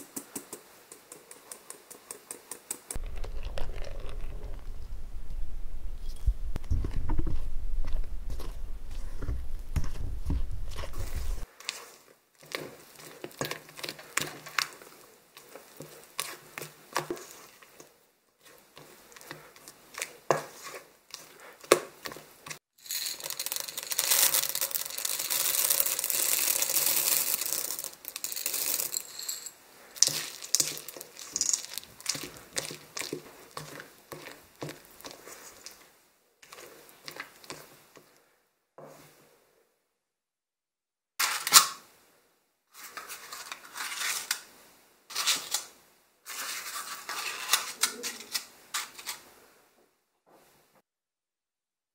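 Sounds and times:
spatula stirring batter in bowl: 0:00.1 - 0:04.3, 0:09.2 - 0:22.6, 0:30.0 - 0:38.2.

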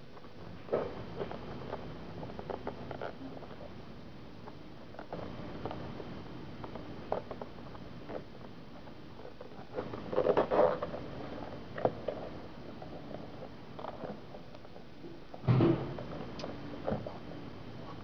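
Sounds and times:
scratchy rustling: 0:00.0 - 0:03.8, 0:04.5 - 0:14.9.

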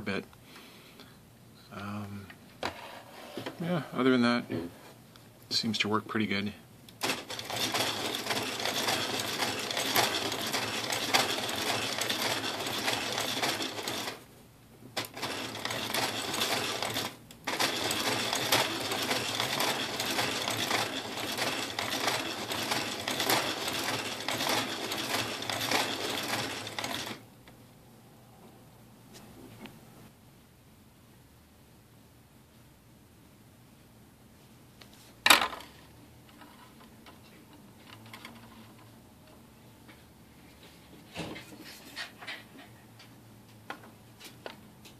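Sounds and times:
plastic gears clattering: 0:15.0 - 0:27.2.

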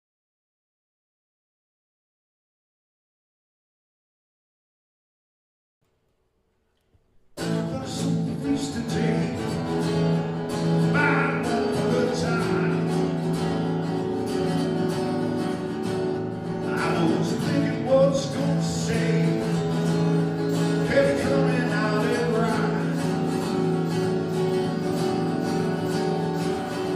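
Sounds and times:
acoustic guitars playing: 0:07.2 - 0:26.9
man singing: 0:07.4 - 0:14.2, 0:16.3 - 0:26.9.

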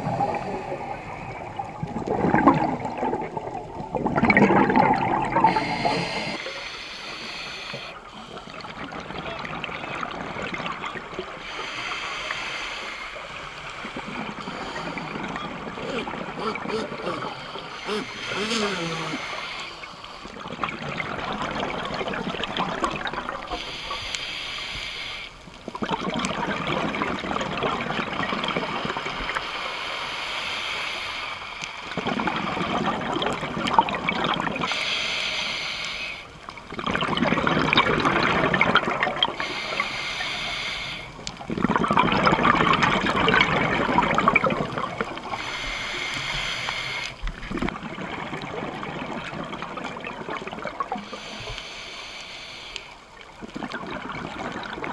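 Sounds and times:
bubbling exhaust underwater: 0:00.0 - 0:29.4, 0:31.9 - 0:54.9
regulator hiss: 0:05.5 - 0:08.7, 0:11.4 - 0:15.0, 0:23.5 - 0:25.3, 0:34.7 - 0:36.3, 0:39.4 - 0:41.1, 0:45.3 - 0:47.2, 0:51.0 - 0:53.0.

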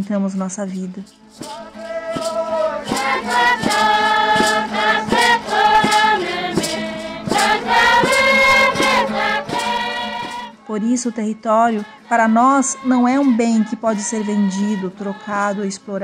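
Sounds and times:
sharp percussion strokes: 0:00.7 - 0:10.7
group of voices chanting: 0:01.4 - 0:10.6.

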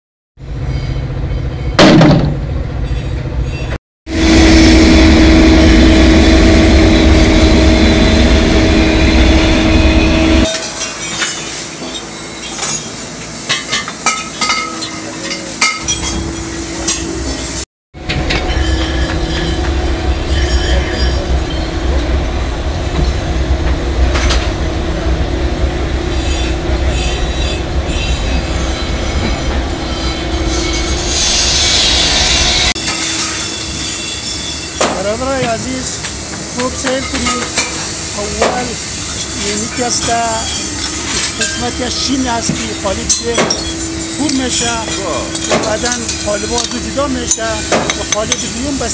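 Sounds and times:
loud metal crash: 0:01.8 - 0:02.5.

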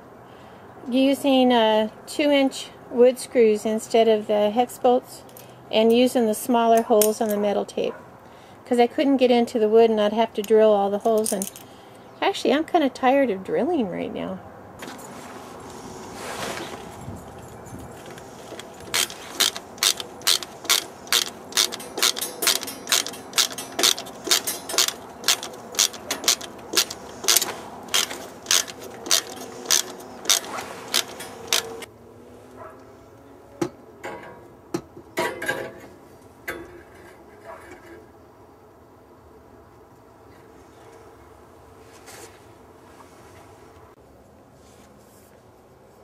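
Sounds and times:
ratchet wrench clicking: 0:18.1 - 0:31.9.

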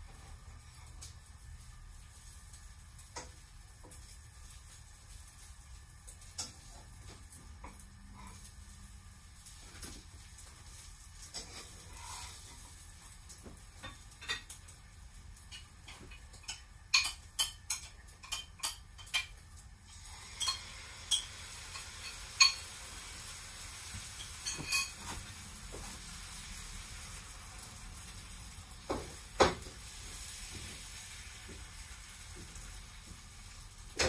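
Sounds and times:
faint steady hiss: 0:00.0 - 0:34.0
dishes and utensils clinking: 0:13.7 - 0:14.7, 0:15.5 - 0:19.4, 0:20.2 - 0:22.8, 0:24.0 - 0:25.8.

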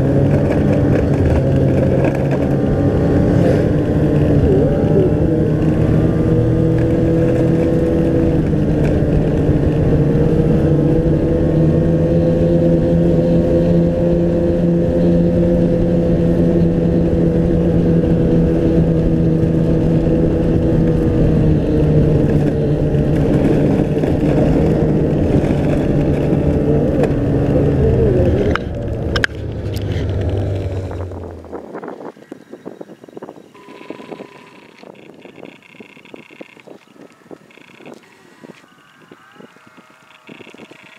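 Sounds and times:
snowmobile engine running: 0:00.0 - 0:31.6
sharp clicks: 0:33.7 - 0:40.9.

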